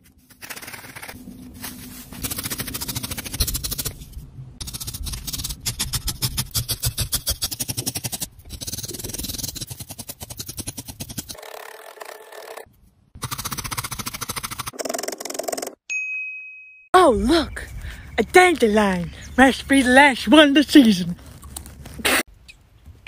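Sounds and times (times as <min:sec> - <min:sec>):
felting needles poking foam: 0:19.7 - 0:22.3.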